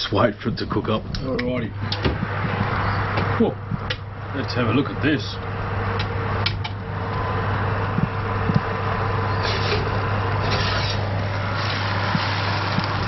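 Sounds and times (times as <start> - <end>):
oven fan whirring hum: 0.0 - 13.0
glass dish scraping on rack: 9.4 - 11.8.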